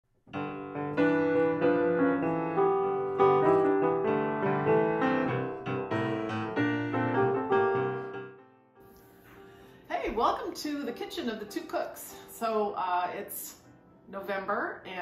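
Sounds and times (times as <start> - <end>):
piano music: 0.3 - 14.9.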